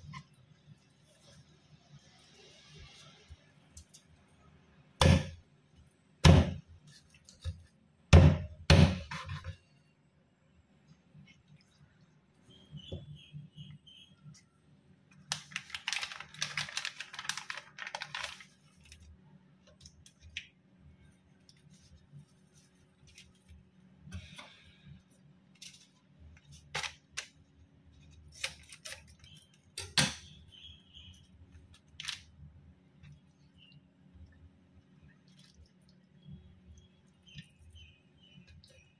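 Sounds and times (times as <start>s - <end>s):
plastic sachet crinkling: 15.1s - 20.5s.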